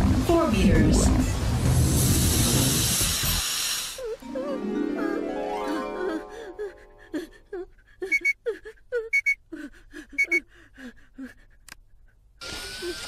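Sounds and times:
cartoon boy panting and whimpering: 4.0 - 13.0
heart monitor beeping: 10.2 - 10.4.

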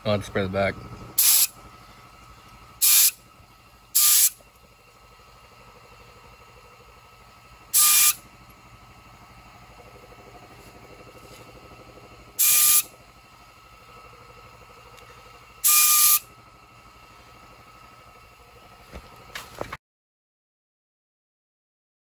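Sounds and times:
spray gun hissing bursts: 1.2 - 1.6, 2.8 - 3.2, 3.9 - 4.4, 7.7 - 8.2, 12.4 - 13.0, 15.6 - 16.3.

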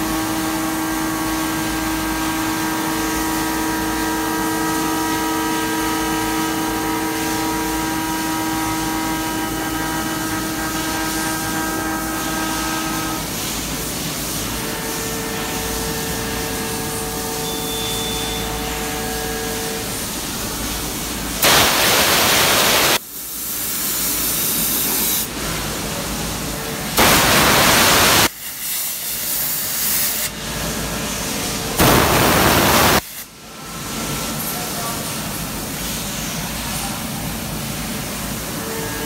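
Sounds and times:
hissing coolant spray: 20.0 - 26.4, 27.0 - 30.3, 31.1 - 33.3.

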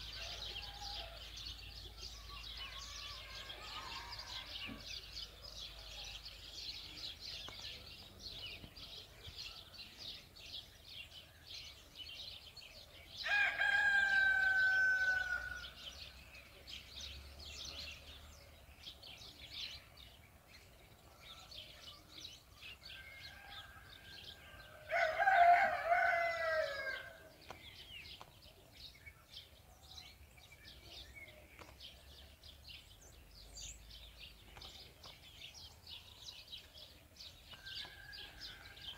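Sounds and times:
small birds chirping: 0.0 - 38.9
drawn-out fowl calls: 13.2 - 15.8, 23.0 - 27.3.

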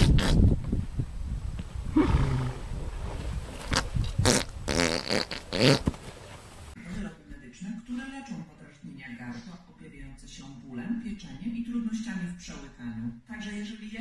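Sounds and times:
horse grunting and groaning: 1.8 - 6.3.

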